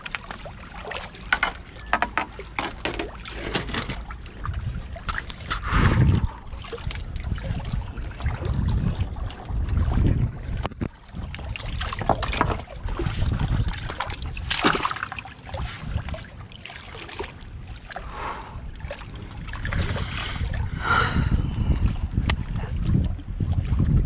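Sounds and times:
water lapping among rocks: 0.0 - 24.0
wind buffeting microphone: 4.1 - 14.6, 17.4 - 24.0.

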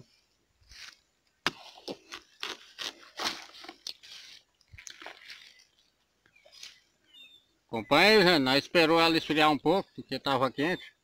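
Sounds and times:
watermelon crunching: 1.4 - 6.8.

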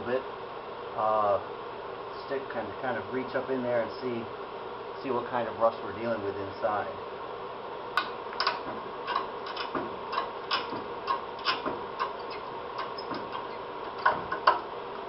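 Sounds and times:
steady background hum: 0.0 - 15.0
rusted sheet metal clicks and scrapes: 8.4 - 14.6.

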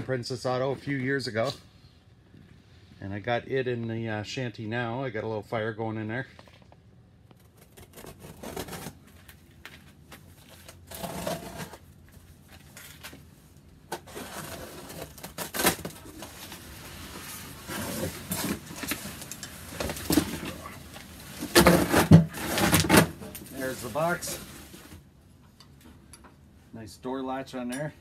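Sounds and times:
cardboard box tearing and rustling: 7.6 - 9.0, 14.0 - 19.1, 21.4 - 24.5.

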